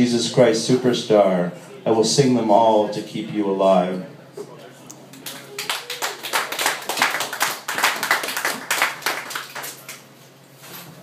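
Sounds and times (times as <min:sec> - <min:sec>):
audience clapping: 0:05.1 - 0:10.1.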